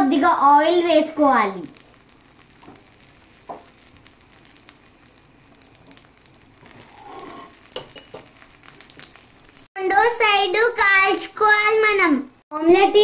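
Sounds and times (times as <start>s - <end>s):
omelette sizzling in oil: 0.4s - 12.5s.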